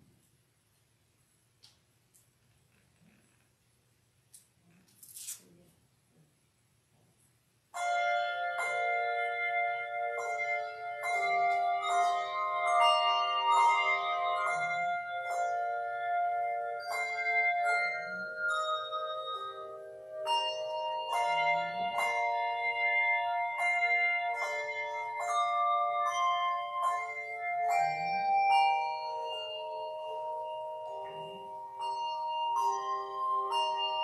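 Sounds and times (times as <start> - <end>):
handbell choir ringing: 7.8 - 34.0.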